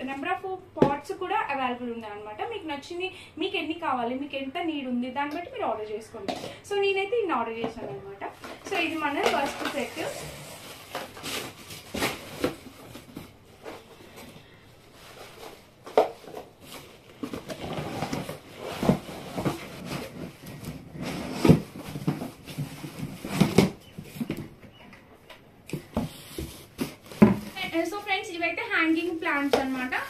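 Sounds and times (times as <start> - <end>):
plastic flower pots clattering: 7.6 - 10.2
cardboard and plastic rustling: 8.2 - 24.9, 25.7 - 30.0.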